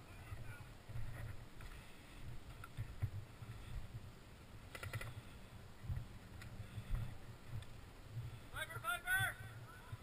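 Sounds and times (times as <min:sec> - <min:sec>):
sharp clicks: 0:04.7 - 0:05.2.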